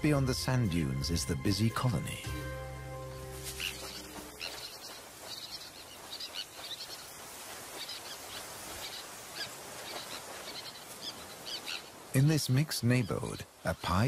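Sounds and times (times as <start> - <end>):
terns and avocets calling: 0.0 - 14.0
steady hiss: 6.6 - 14.0.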